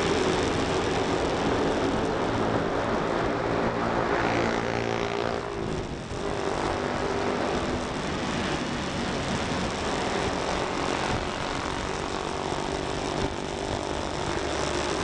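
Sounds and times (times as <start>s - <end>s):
motorcycle engine running: 0.0s - 15.0s
wind and road noise: 0.0s - 15.0s.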